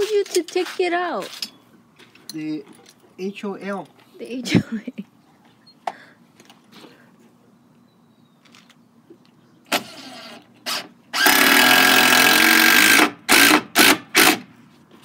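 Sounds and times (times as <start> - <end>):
cordless power tool motor: 9.7 - 14.4.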